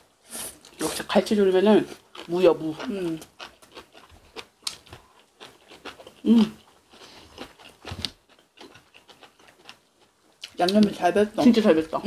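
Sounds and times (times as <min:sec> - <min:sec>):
wet chewing: 0:01.8 - 0:11.0
person humming: 0:06.3 - 0:06.6.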